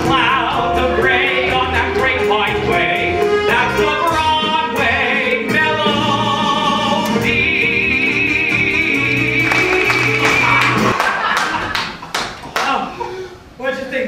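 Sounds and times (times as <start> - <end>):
men singing show tune: 0.0 - 10.9
pit orchestra playing: 0.0 - 11.0.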